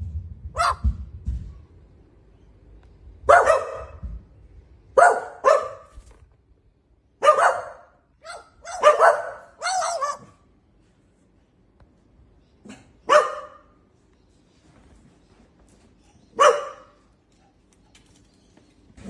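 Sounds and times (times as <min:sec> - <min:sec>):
sharp dog barks: 0:00.6 - 0:00.9, 0:03.3 - 0:04.0, 0:05.0 - 0:05.9, 0:07.2 - 0:10.3, 0:12.7 - 0:13.6, 0:16.4 - 0:17.0.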